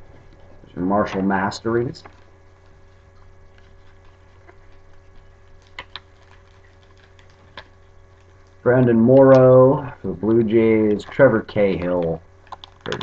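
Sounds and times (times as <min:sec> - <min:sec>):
low hum: 0:00.0 - 0:13.0
cards ticking and tapping: 0:05.6 - 0:07.7, 0:10.4 - 0:13.0.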